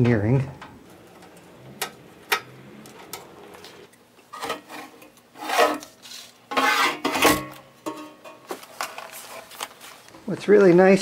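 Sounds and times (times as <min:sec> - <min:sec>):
metal cabinet scraping: 0:00.0 - 0:07.6.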